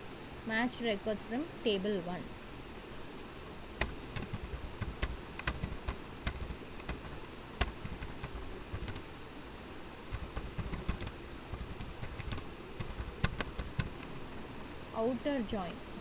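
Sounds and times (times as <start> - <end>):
keyboard key clicks: 3.8 - 9.0, 10.1 - 14.1.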